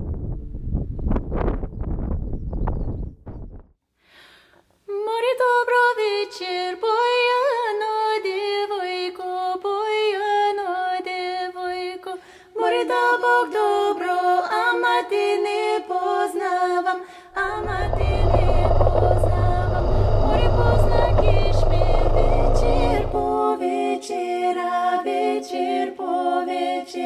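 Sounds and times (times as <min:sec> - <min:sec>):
women singing unaccompanied: 0:04.9 - 0:27.0
engine and wind noise: 0:17.4 - 0:23.3.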